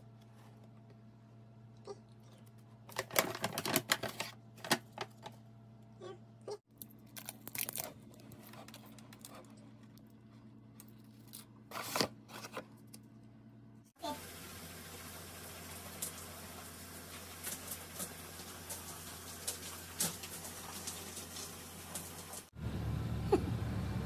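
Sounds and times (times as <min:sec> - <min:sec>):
paper bag crinkling: 0:02.8 - 0:05.3.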